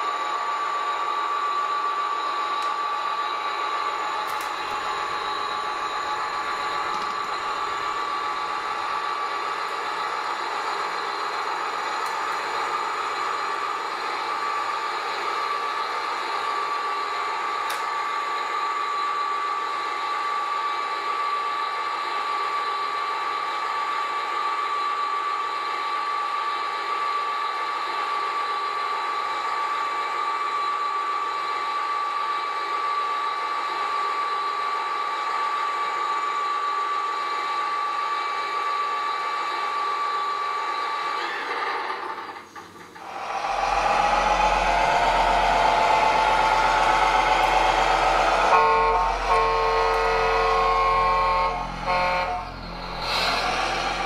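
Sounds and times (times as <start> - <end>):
electric motor whine: 43.0 - 54.0.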